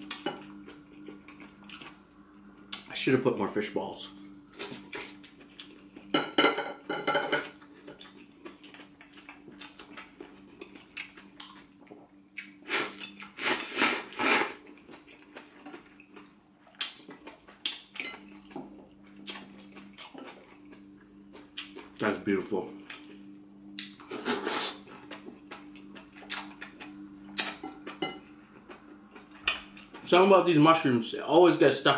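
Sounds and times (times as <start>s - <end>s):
faint steady hum: 0.0s - 31.9s
noodle slurping: 12.7s - 14.6s, 24.1s - 24.8s.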